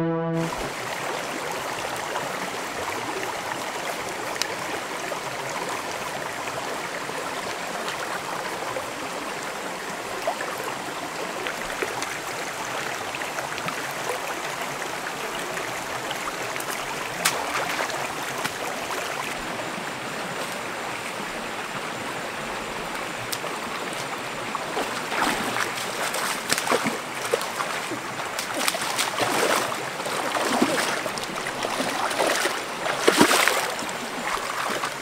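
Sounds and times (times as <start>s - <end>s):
stream flowing over rocks: 0.5s - 35.0s
splashing wading in water: 16.6s - 19.4s, 22.9s - 35.0s.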